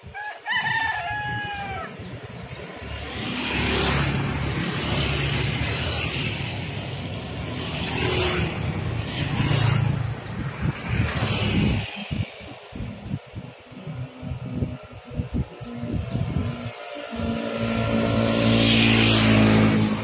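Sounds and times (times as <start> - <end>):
rooster crowing: 0.1 - 2.1.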